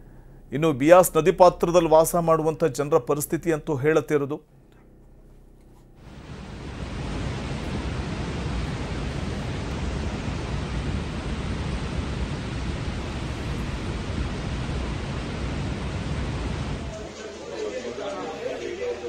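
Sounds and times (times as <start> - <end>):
floodwater rushing: 6.1 - 17.2.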